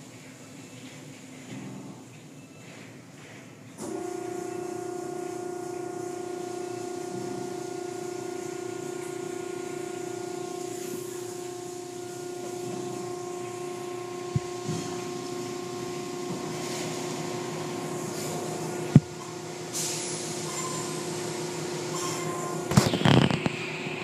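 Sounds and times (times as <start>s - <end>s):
car wash motor hum: 3.0s - 24.0s
water spraying: 5.1s - 21.9s.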